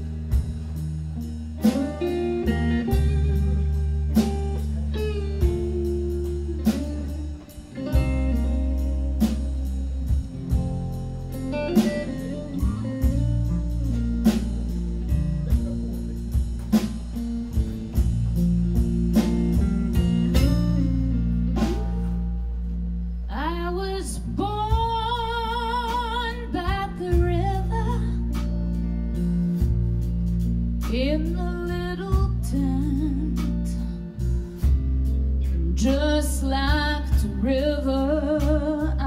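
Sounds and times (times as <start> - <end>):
bass and drums: 0.0 - 39.0
electric guitar lead: 0.0 - 39.0
woman singing with vibrato: 23.3 - 28.2, 35.6 - 39.0.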